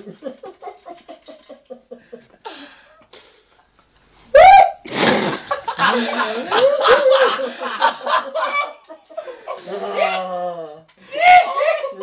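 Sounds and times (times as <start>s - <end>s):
harsh noisy burst: 3.2s - 5.7s
man laughing: 4.9s - 10.3s
man yelling: 9.7s - 12.0s.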